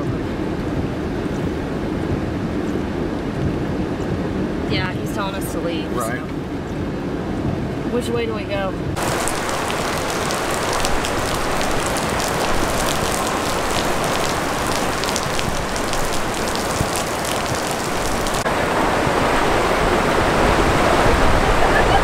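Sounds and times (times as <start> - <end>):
raindrops ticking: 9.0 - 18.5
floodwater rushing: 9.0 - 22.0
heavy rain hissing: 9.0 - 22.0.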